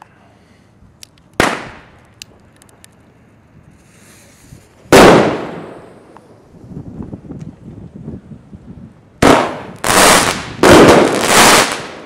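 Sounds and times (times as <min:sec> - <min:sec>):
firework bangs: 0:01.4 - 0:02.0, 0:04.7 - 0:06.1, 0:09.2 - 0:12.0
faint hiss: 0:02.4 - 0:05.0.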